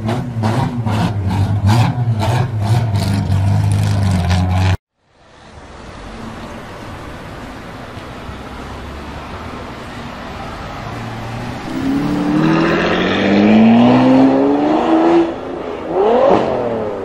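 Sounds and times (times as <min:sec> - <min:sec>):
street traffic noise: 0:00.0 - 0:17.0
engine revving sound effect: 0:11.6 - 0:15.3.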